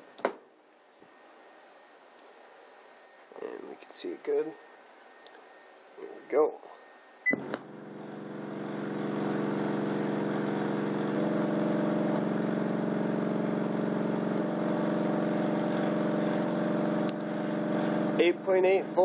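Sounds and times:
subwoofer bass tone drone: 7.4 - 19.0.

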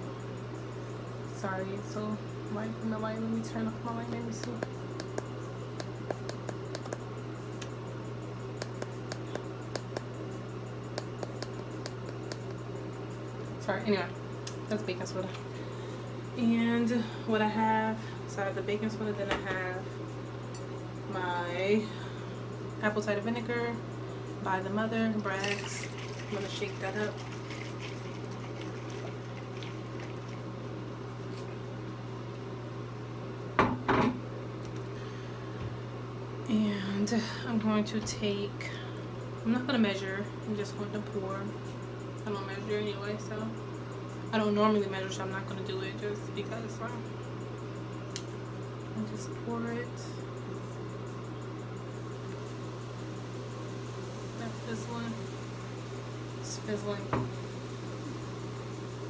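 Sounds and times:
steady low hum: 0.0 - 59.0
handling clicks and ticks: 4.4 - 7.8, 8.6 - 12.6.

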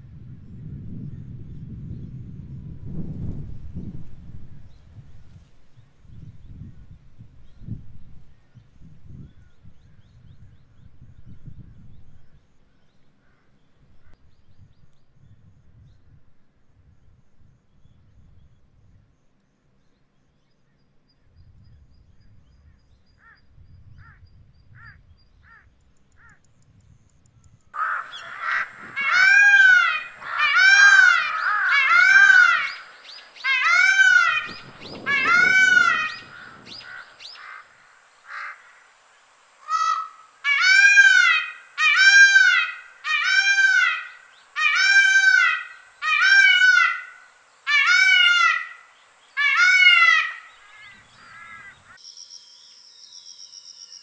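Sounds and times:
peacock calling: 27.8 - 38.8, 39.6 - 52.0.

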